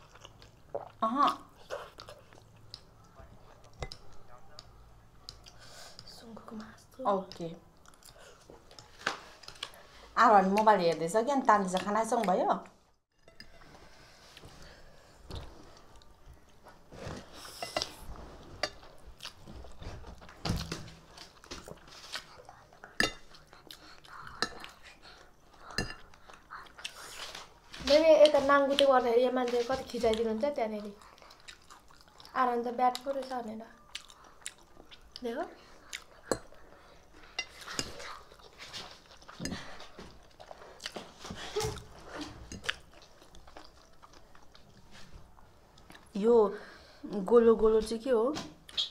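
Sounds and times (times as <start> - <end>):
person chewing: 0.0 - 6.2, 7.8 - 9.9, 15.3 - 27.7, 30.9 - 46.1.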